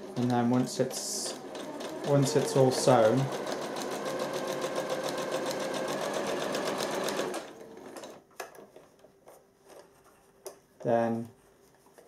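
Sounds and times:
sewing machine stitching: 0.0 - 8.2.

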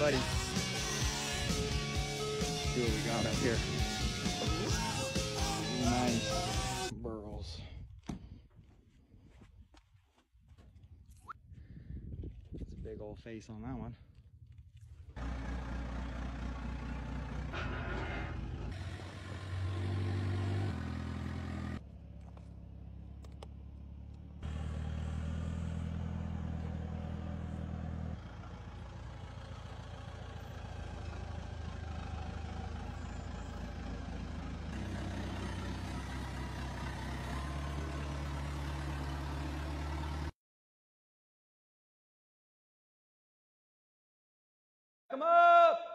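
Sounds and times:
diesel engine running: 0.0 - 6.9, 15.2 - 40.3.

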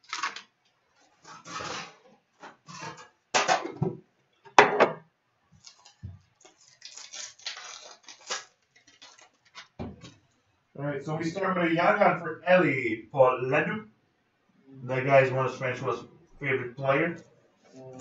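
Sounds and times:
foil wrapper tearing: 0.0 - 0.6, 5.6 - 9.8.

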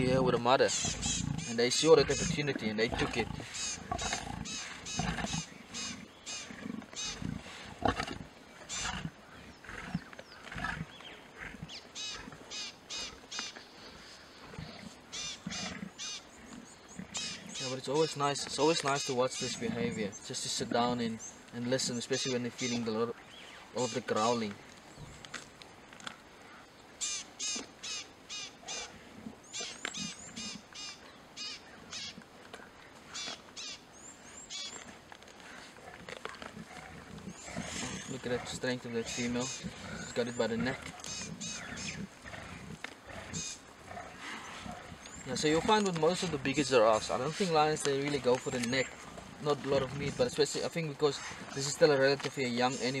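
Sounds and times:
harsh animal calls: 0.0 - 20.2, 26.5 - 53.0
lions growling and snarling: 0.0 - 23.3, 28.6 - 30.7, 34.2 - 53.0.

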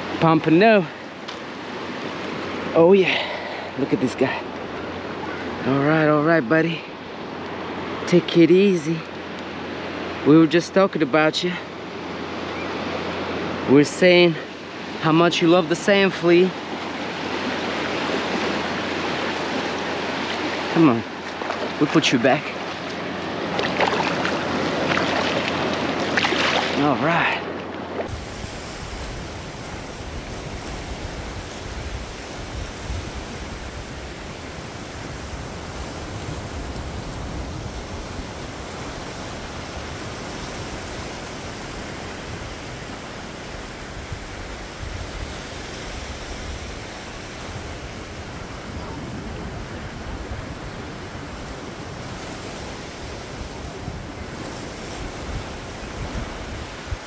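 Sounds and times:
ocean surf washing ashore: 0.0 - 57.0
wind on microphone: 28.0 - 57.0.

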